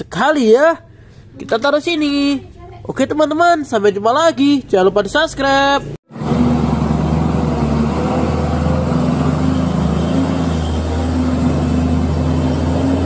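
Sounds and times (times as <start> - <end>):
diesel truck engine droning: 6.1 - 13.0.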